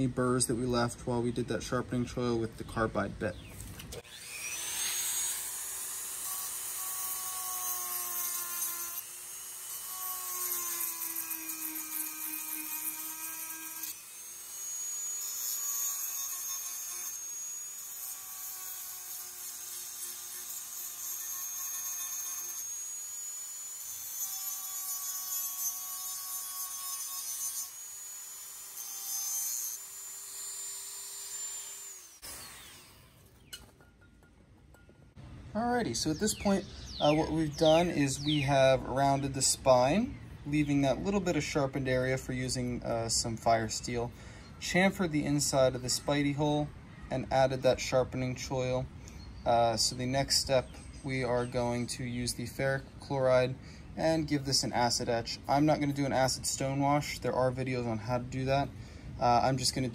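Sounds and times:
rotary tool grinding whine: 3.9 - 33.8.

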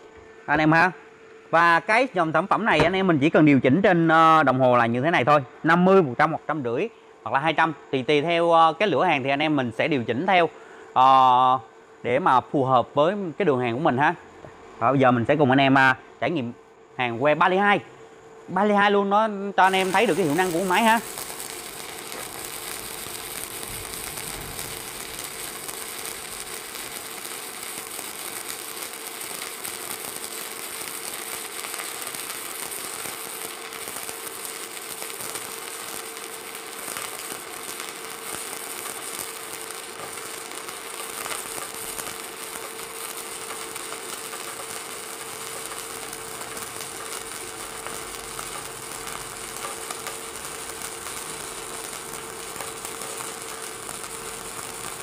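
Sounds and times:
welding arc burning: 19.6 - 55.0.

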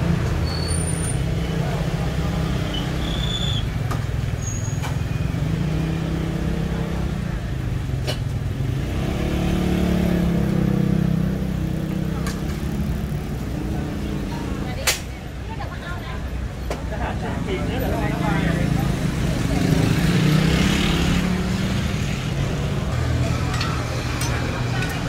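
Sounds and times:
street noise: 0.0 - 25.0.

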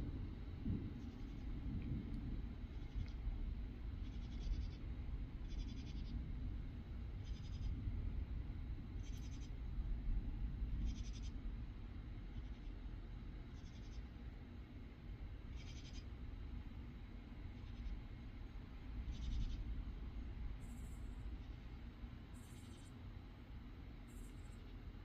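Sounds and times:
low steady rumble: 0.0 - 25.0
insects calling in raspy bursts: 4.0 - 6.3, 7.2 - 7.8, 9.0 - 9.6, 10.8 - 14.3, 15.4 - 16.4, 17.1 - 24.9.

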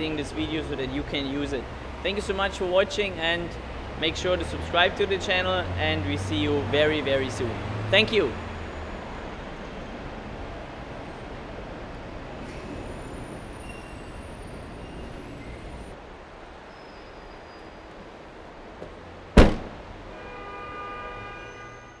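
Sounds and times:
low traffic rumble: 0.0 - 21.8
car door slamming: 19.4 - 19.9.

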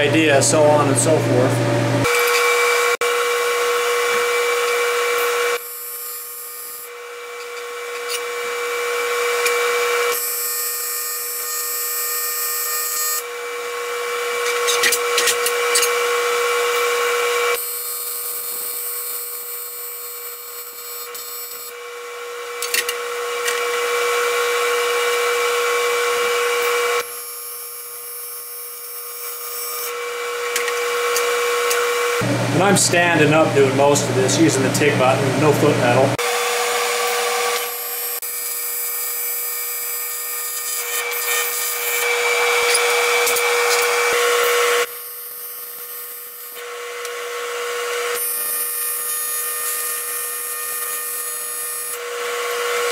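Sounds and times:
welding arc buzzing hiss: 17.5 - 21.7, 36.2 - 46.6.

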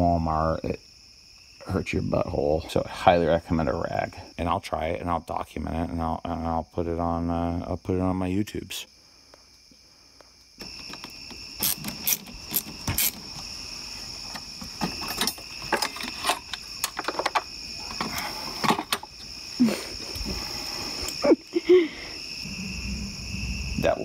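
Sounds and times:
crickets chirping: 0.0 - 24.0
tools clattering on engine parts: 14.3 - 19.1.

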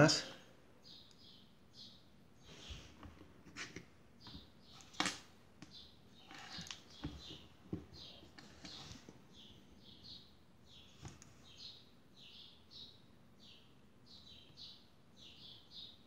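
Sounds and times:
faint bird chirping: 0.0 - 16.0.

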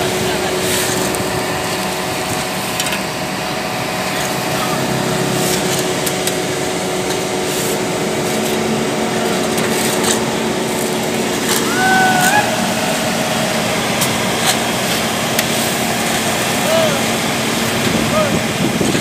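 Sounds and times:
paver engine running: 0.0 - 19.0
rakes scraping asphalt: 0.1 - 16.8
wavering call: 11.6 - 13.3.

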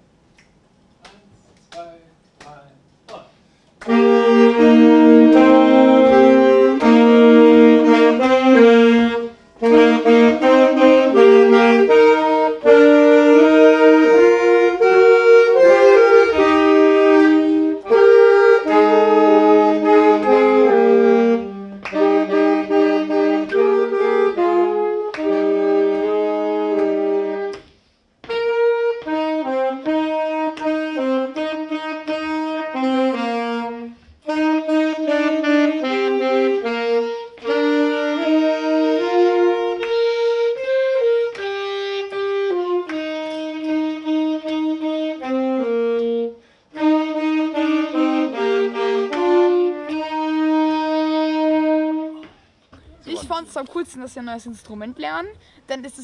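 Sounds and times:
saxophones playing in harmony: 3.5 - 53.4.

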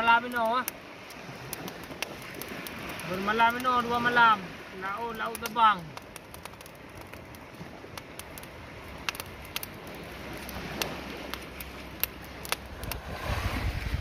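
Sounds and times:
fire crackling and popping: 0.0 - 14.0
rushing sound with low rumble: 12.8 - 14.0.

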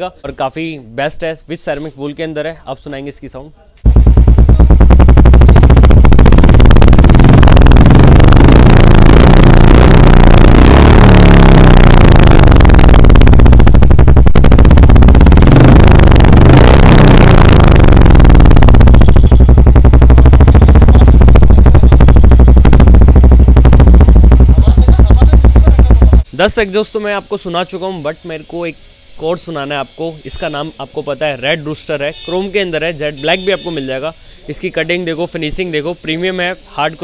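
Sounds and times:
motorcycle engine revving and idling: 3.8 - 26.3.

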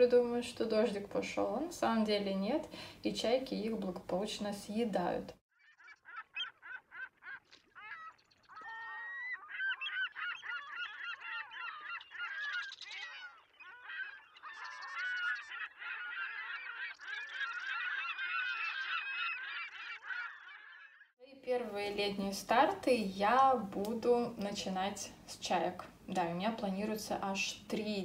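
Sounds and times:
gulls calling: 5.6 - 21.2.

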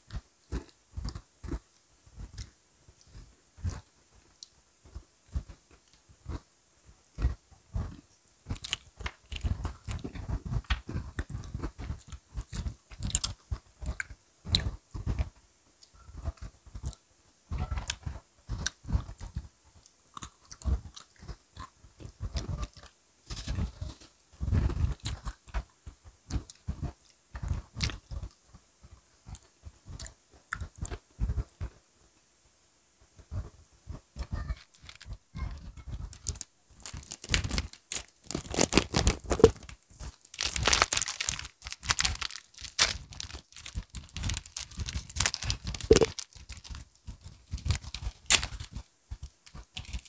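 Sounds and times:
cookie crunching and chewing: 7.2 - 15.3, 20.1 - 23.7, 34.6 - 35.2, 36.0 - 50.0.

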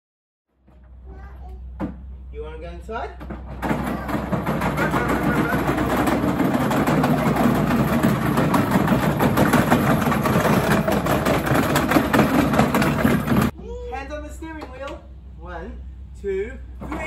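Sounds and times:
toy car wheels rolling over paving: 3.7 - 13.5.

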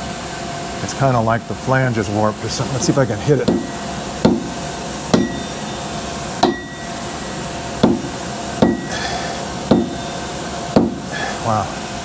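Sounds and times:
machine shop hum: 0.0 - 12.0
hammer tapping metal: 2.8 - 5.8, 6.4 - 11.1.

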